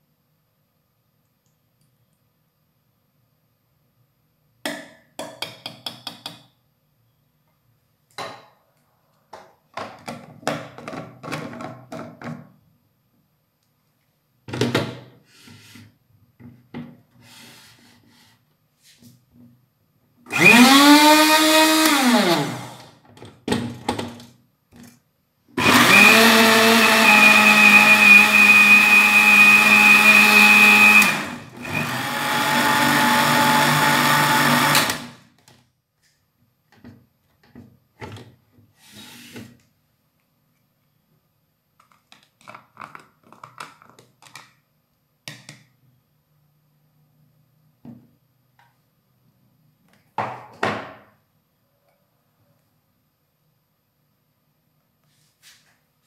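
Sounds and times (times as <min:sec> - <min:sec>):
electric blender motor running: 0:20.3 - 0:22.9, 0:25.6 - 0:35.2.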